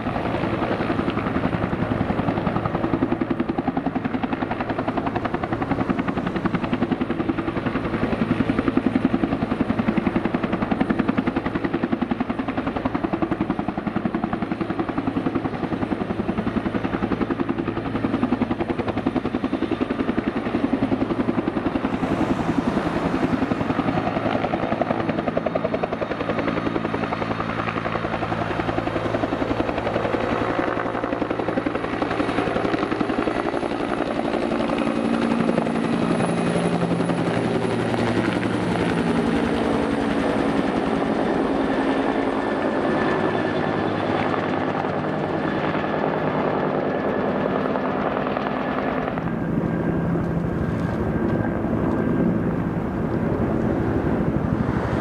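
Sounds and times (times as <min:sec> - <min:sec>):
helicopter rotor beating: 0:00.0 - 0:55.0
turbine whine: 0:19.8 - 0:25.4, 0:48.7 - 0:55.0.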